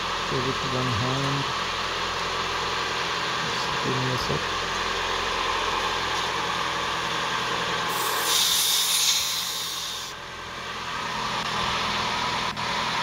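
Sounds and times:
car engine idling: 0:00.0 - 0:13.0
air hissing from tyre valve: 0:07.8 - 0:10.2.

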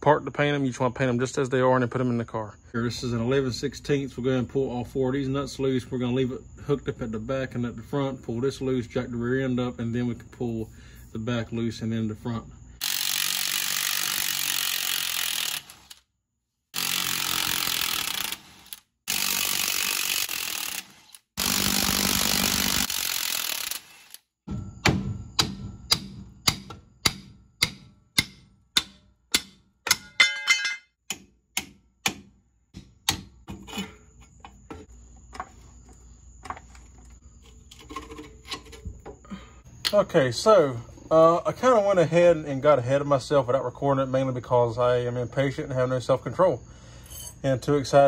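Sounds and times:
power tool running: 0:12.8 - 0:16.0, 0:16.8 - 0:24.2
sharp metallic knocks: 0:24.5 - 0:33.8.

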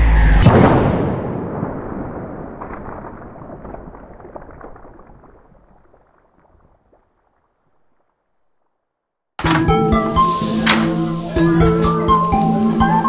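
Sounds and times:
explosion rumble with crackles: 0:00.2 - 0:08.9.

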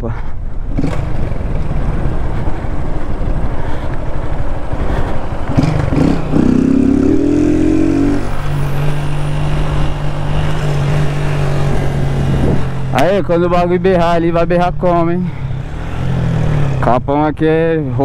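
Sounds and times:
wind noise on microphone: 0:00.2 - 0:13.0
motorcycle engine revving: 0:00.6 - 0:18.0.

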